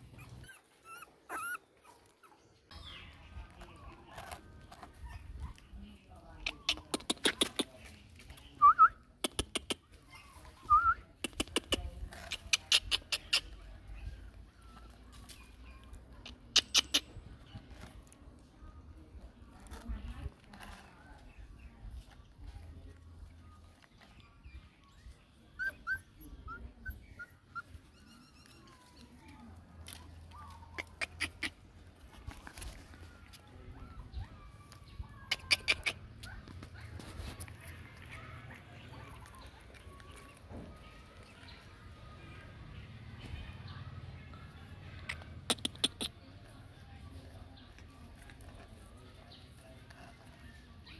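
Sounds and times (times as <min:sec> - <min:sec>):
puppy whimpering: 0:00.0 - 0:03.1, 0:25.4 - 0:29.1
puppies whining: 0:00.0 - 0:05.8, 0:23.4 - 0:29.3, 0:29.9 - 0:42.0.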